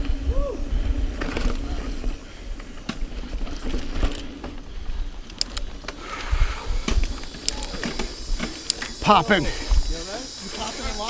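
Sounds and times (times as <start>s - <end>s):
wind rumble on microphone: 0.0s - 2.2s
bike clicking and rattling: 0.0s - 11.0s
bike tyres on dirt trail: 0.0s - 11.0s.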